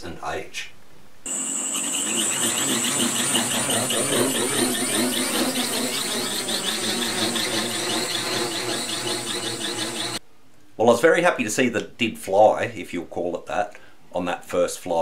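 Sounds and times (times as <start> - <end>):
drone motors and propellers whining: 1.3 - 10.2.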